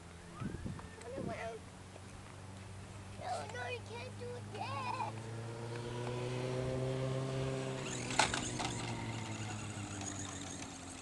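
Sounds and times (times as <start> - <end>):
motor humming: 4.2 - 11.0.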